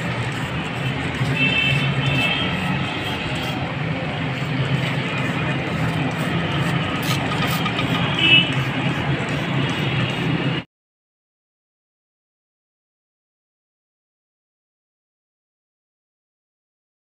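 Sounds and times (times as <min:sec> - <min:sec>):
city street traffic: 0:00.0 - 0:10.7.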